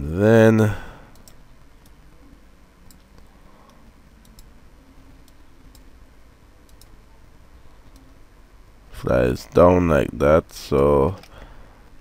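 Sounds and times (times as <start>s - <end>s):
low steady hiss: 0.0s - 12.0s
computer mouse clicks: 2.9s - 4.5s, 6.7s - 6.9s.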